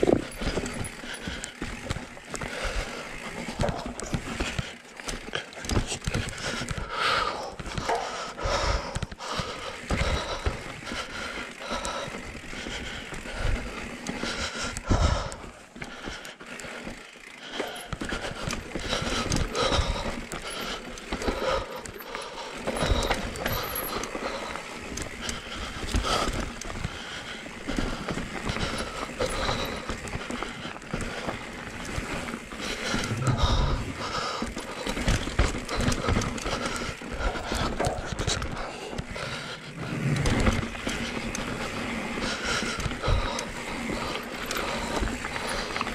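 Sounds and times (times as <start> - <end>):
bike rattling and knocking: 0.0 - 45.9
tyres crunching over dirt and rock: 17.7 - 39.1.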